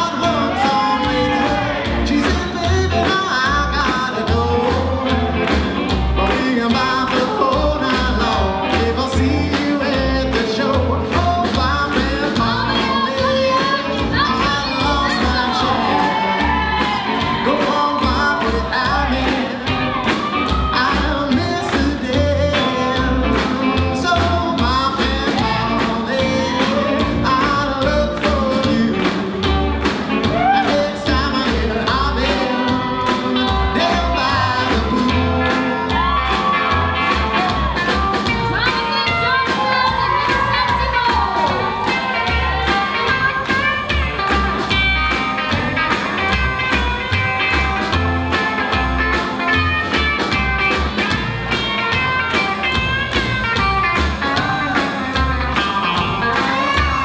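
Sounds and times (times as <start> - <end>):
person singing: 0.0 - 5.6, 6.2 - 29.6, 30.2 - 37.7, 54.2 - 57.0
driving drum beat: 0.0 - 57.0
pulsing bass line: 0.0 - 57.0
rock and roll song: 0.0 - 57.0.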